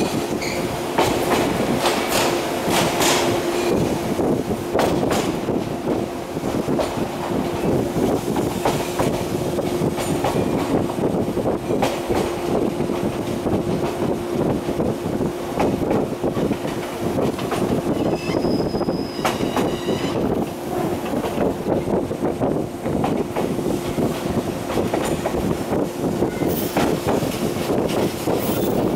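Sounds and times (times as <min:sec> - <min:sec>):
train wheels clacking over rails: 0:00.0 - 0:28.9
high-pitched wheel squeal: 0:18.0 - 0:20.3.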